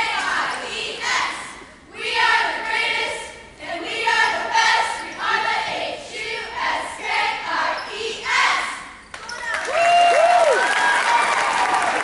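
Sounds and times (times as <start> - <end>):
cheerleaders chanting in unison: 0.0 - 9.0.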